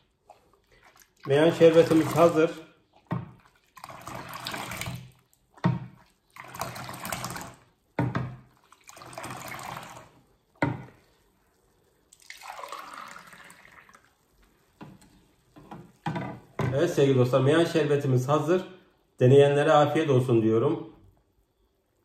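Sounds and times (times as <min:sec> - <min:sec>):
liquid pouring: 0:00.0 - 0:16.6.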